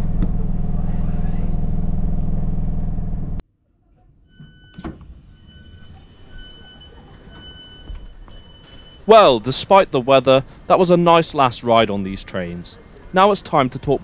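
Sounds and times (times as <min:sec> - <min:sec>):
train hum and rumble: 0:00.0 - 0:03.4
high electronic door beep: 0:04.3 - 0:09.1.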